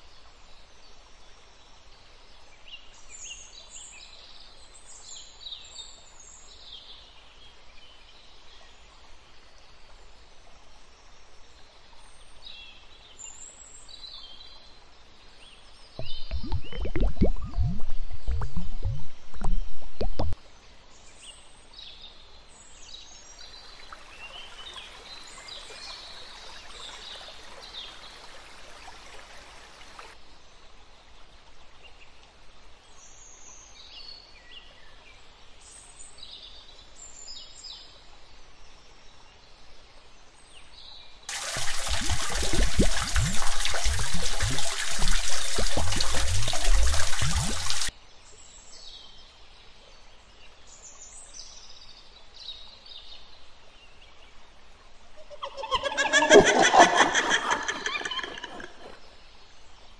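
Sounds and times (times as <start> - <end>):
liquid pouring and splashing: 16.0 - 20.4, 41.3 - 47.9
birds chirping: 55.2 - 59.1.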